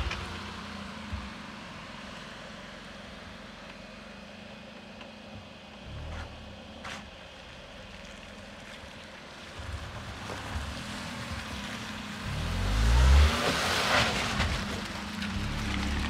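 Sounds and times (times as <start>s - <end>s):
car engine passing by: 9.4s - 16.0s.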